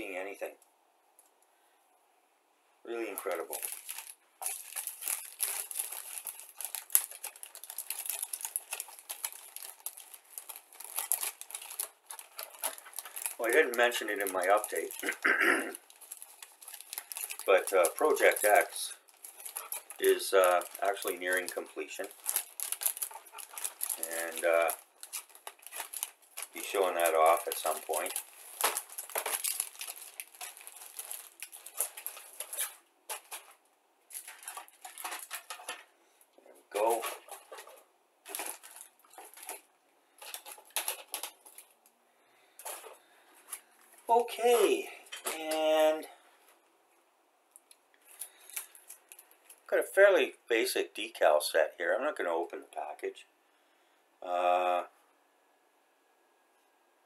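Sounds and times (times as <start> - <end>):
plastic bag crinkling: 2.9 - 46.2, 47.6 - 50.4
plastic sprues rustling and clicking: 3.0 - 42.0, 42.6 - 45.8, 47.5 - 49.7
plastic parts clicking: 34.1 - 35.9.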